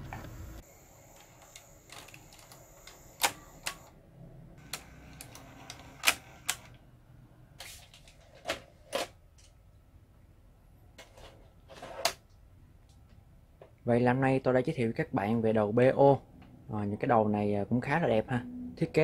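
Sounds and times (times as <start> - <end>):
faint motor whir: 0.1 - 4.0, 4.6 - 6.8
tape mechanism clicking and clunking: 1.2 - 4.0, 4.6 - 6.8.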